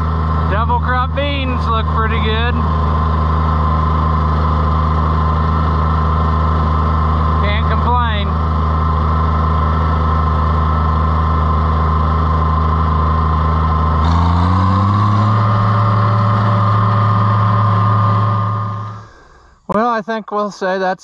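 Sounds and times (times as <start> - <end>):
tractor engine running: 0.0 - 19.9.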